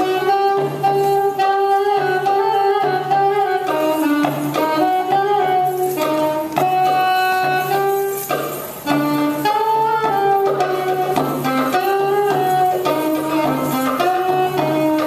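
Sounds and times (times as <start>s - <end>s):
saxophone melody: 0.0s - 15.0s.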